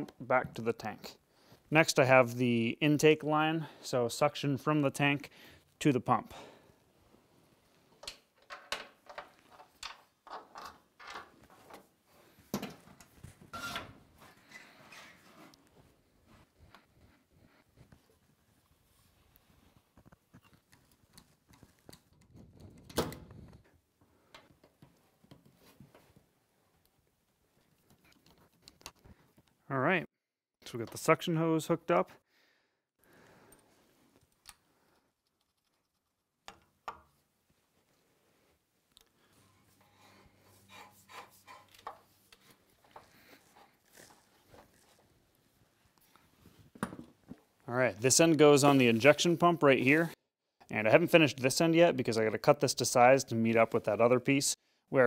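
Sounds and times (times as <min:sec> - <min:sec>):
hose squeak: 0:13.5 - 0:15.4
rubber hose creaking against steel: 0:13.5 - 0:15.7, 0:39.6 - 0:45.0.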